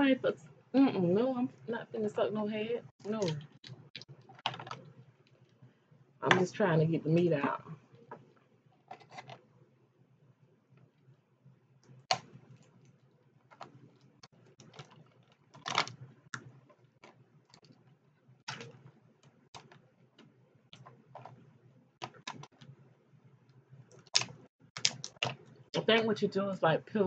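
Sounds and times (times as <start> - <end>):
crawfish shells cracking: 13.5 - 17.7, 24.0 - 25.4.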